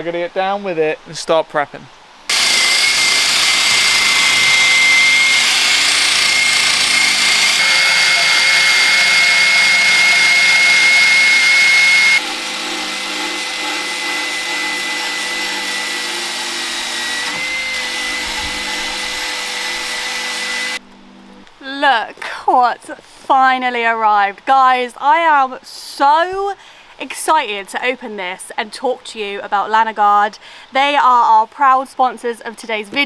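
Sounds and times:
drill wire brush grinding metal: 2.3s - 20.8s.

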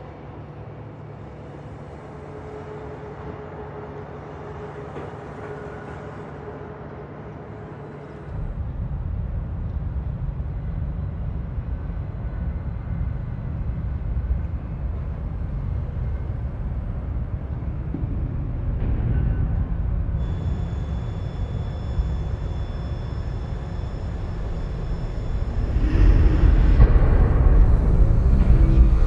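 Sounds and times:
mechanical rumble: 0.0s - 29.0s
faint held tone: 20.2s - 26.8s.

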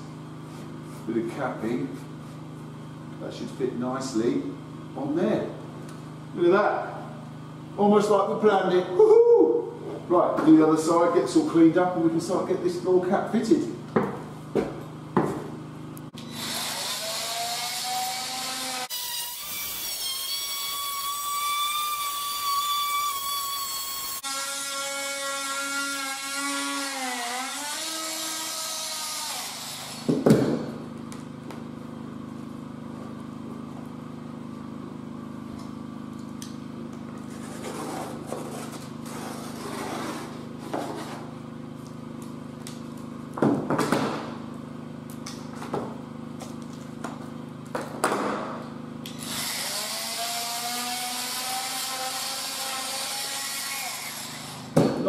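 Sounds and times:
oscillating tool cutting plasterboard: 16.2s - 30.1s, 37.3s - 41.3s, 49.2s - 54.8s.

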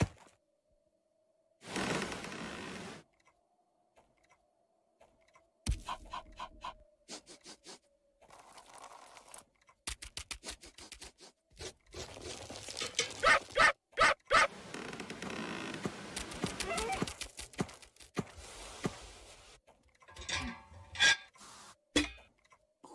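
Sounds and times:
cartoon dog yapping: 13.2s - 14.5s.

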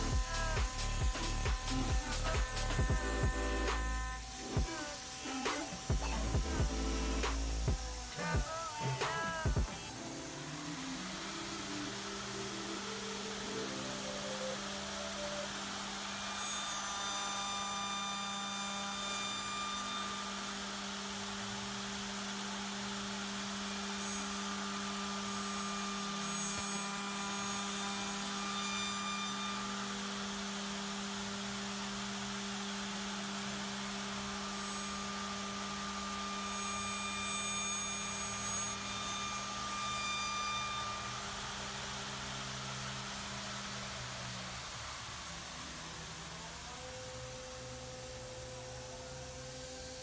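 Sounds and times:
high whining tones: 0.0s - 17.9s
steady machine hum: 0.0s - 17.9s
milling machine cutting wood: 0.0s - 50.0s.

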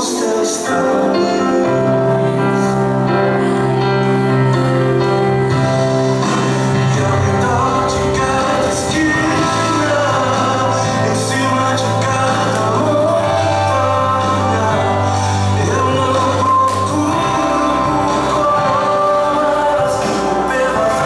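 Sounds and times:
person singing: 0.0s - 21.0s
sustained bass notes: 0.9s - 21.0s.

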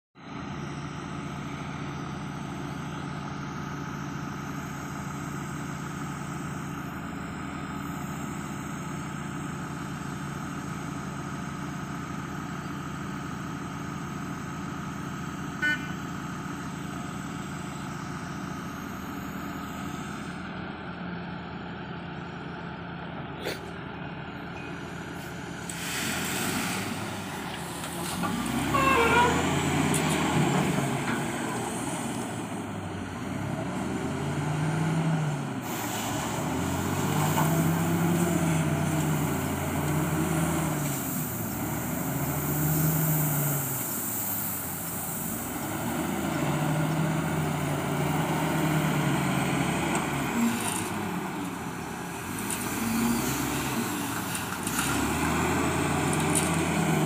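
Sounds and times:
diesel engine running: 0.2s - 57.0s
rush of gravel being tipped: 25.6s - 28.7s.

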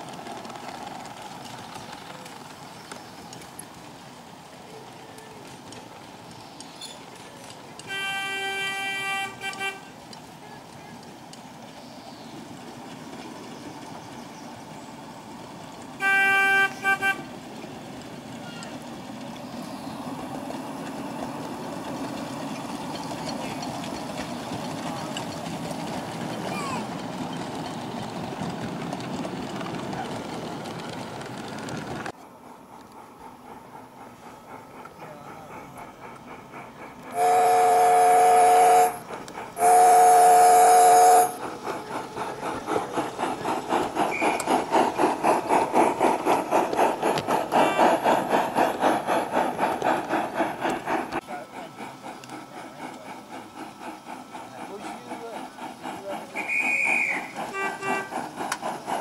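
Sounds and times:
miniature locomotive engine running: 0.0s - 59.0s
steam locomotive chime whistle: 7.8s - 9.9s, 16.0s - 17.3s, 37.1s - 39.0s, 39.6s - 41.4s, 56.4s - 58.2s.

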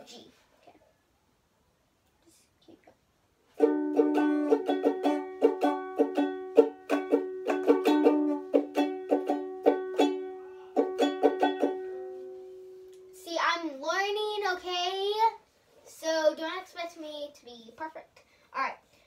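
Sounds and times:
ukulele strumming chords: 3.6s - 13.2s.

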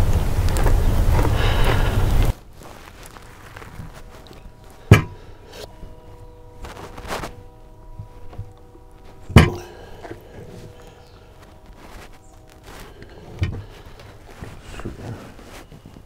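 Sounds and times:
softer knocks: 4.9s - 5.4s, 9.3s - 10.2s.

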